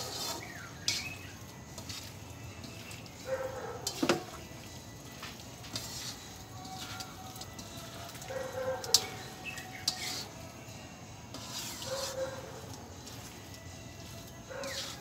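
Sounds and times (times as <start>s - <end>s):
spatula scraping leaves in a wok: 0.0s - 15.0s
spatula clinking on wok: 5.7s - 10.3s.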